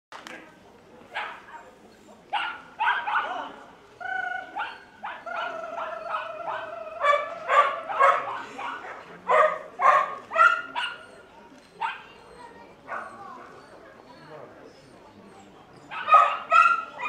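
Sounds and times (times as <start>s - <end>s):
dog barking high-pitched: 2.4s - 3.5s, 4.6s - 8.5s, 15.9s - 17.0s.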